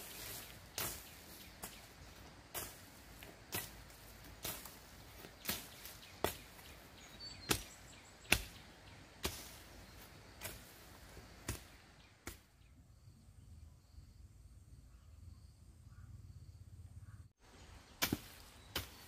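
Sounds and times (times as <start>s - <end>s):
hoe chopping dry ground: 0.0s - 12.6s, 17.9s - 19.0s.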